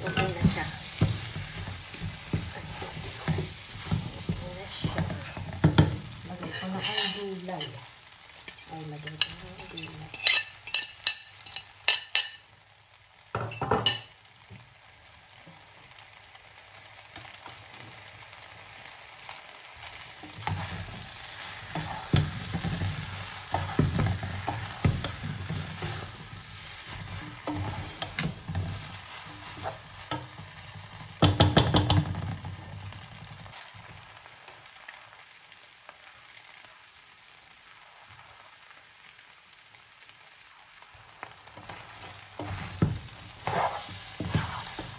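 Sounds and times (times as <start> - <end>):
noodles sizzling in a wok: 0.0 - 44.9
utensil scraping and clattering: 6.4 - 7.7, 8.5 - 12.4, 41.7 - 44.9
fork clinking against plate: 9.7 - 12.4.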